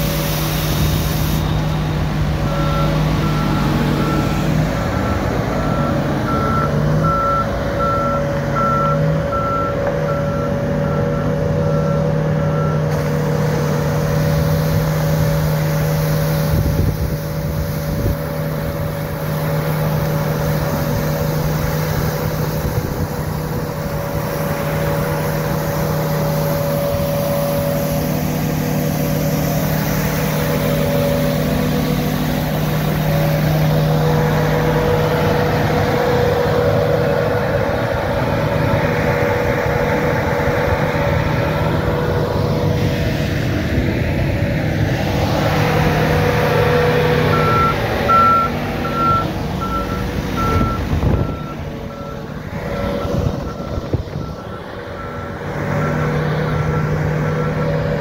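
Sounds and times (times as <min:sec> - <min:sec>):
street sweeper engine humming: 0:00.0 - 0:58.0
reversing alarm beeps: 0:02.4 - 0:12.9, 0:47.2 - 0:58.0.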